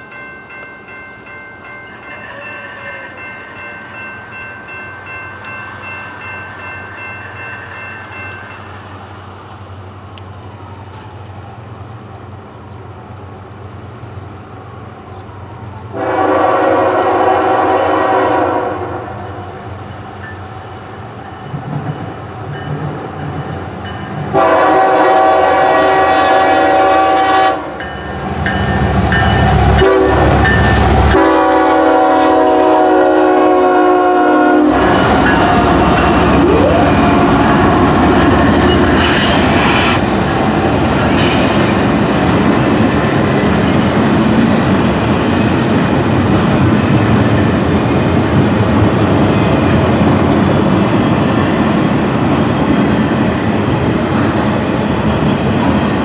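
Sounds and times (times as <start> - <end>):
locomotive air horn blasts: 2.2 - 3.3, 16.0 - 19.3, 24.3 - 27.8, 29.8 - 35.7
locomotive engine and wheel rumble: 3.0 - 24.6, 27.7 - 56.0.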